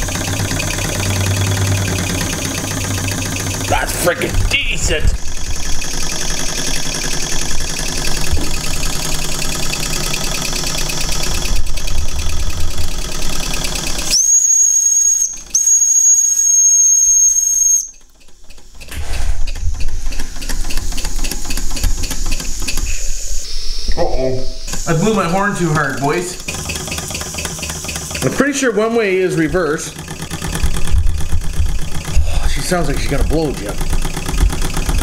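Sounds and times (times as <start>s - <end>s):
model steam engine chuffing: 0.0s - 23.2s, 24.8s - 35.0s
shrill steam whistle: 14.0s - 18.0s
steam hissing: 18.8s - 29.2s.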